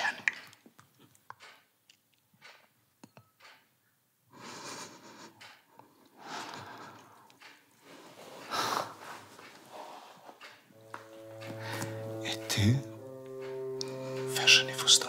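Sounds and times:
person breathing hard: 6.1 - 7.3, 8.3 - 9.3
person sniffing: 8.4 - 10.1.

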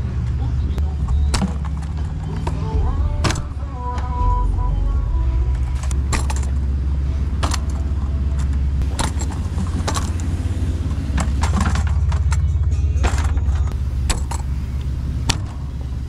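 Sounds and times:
steady low rumble: 0.0 - 16.0
metal clinks and clanks: 5.5 - 14.8.

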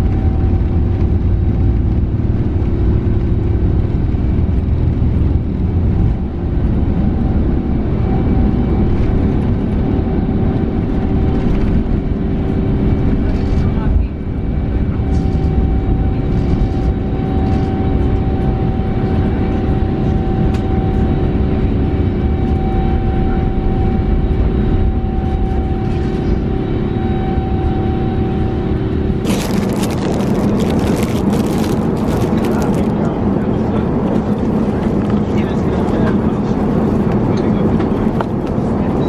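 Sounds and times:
steady whine: 0.0 - 39.0
rustling handling noise: 29.2 - 32.9.

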